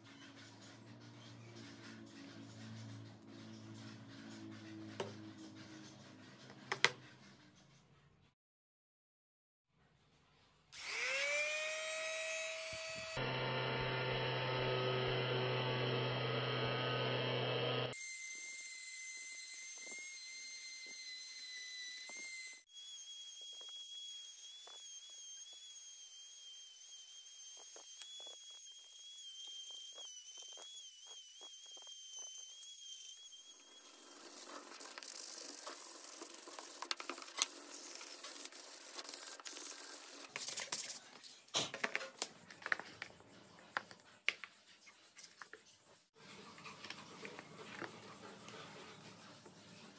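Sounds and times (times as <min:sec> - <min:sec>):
rotary tool grinding wood: 0:10.8 - 0:18.0, 0:19.5 - 0:40.4.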